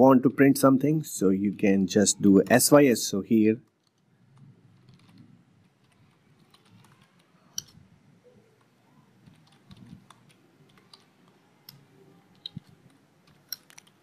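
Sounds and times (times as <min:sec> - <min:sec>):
keyboard typing: 0:03.6 - 0:14.0.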